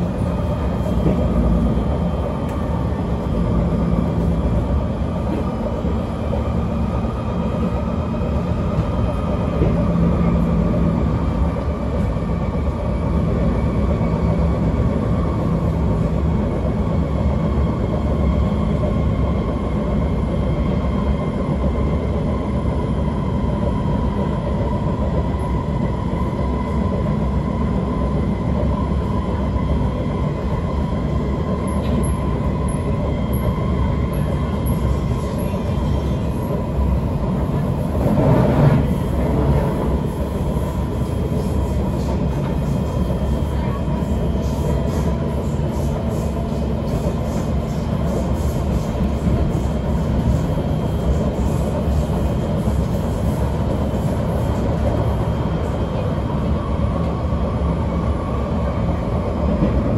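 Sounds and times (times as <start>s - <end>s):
train wheels rumbling: 0.0s - 59.9s.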